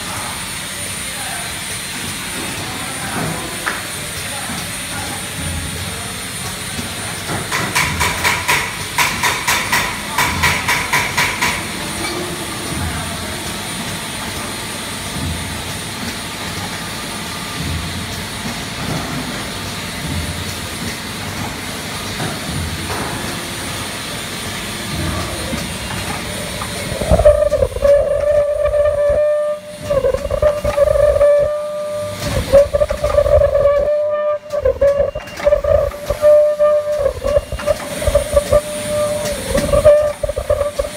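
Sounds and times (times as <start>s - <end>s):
packing machine mechanical din: 1.5s - 40.9s
wavering tone: 26.9s - 40.9s.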